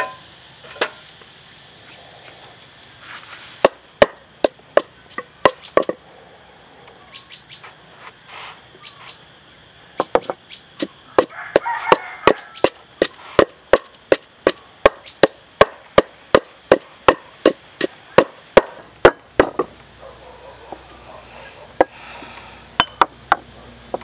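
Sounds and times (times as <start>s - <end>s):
wooden pestle pounding in mortar: 3.6s - 6.0s, 11.2s - 19.7s.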